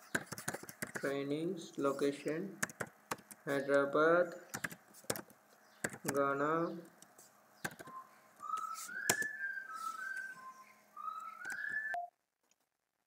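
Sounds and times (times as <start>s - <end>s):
computer keys clicking: 0.0s - 1.1s, 2.2s - 3.8s, 4.4s - 6.3s, 6.9s - 8.0s
person whistling a tune: 7.8s - 12.1s.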